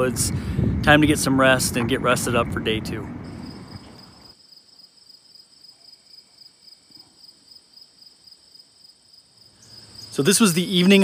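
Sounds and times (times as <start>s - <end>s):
crickets chirping: 3.2s - 11.0s.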